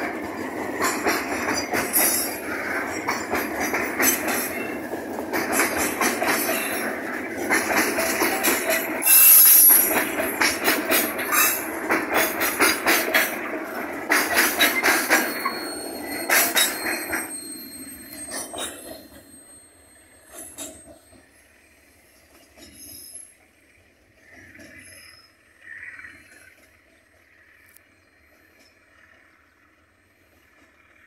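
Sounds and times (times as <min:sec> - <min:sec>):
freight train wheels clacking: 0:00.0 - 0:31.0
high wheel squeal: 0:05.6 - 0:13.4, 0:14.2 - 0:26.6.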